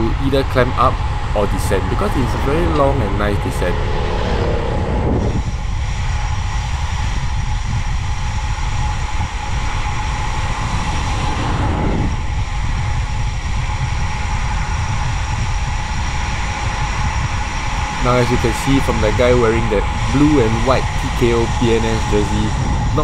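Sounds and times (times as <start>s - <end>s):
wind rumble on microphone: 0.0s - 23.0s
car passing close: 1.4s - 5.5s.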